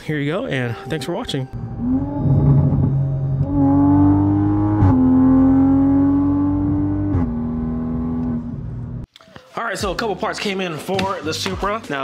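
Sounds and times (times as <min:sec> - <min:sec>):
car engine accelerating: 0:01.6 - 0:09.0.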